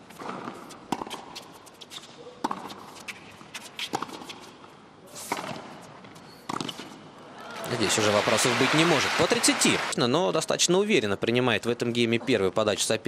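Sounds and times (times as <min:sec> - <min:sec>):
tennis ball bouncing on hard court: 0:00.1 - 0:01.5, 0:02.4 - 0:04.5, 0:05.3 - 0:07.0
faint arena hubbub: 0:02.1 - 0:02.8.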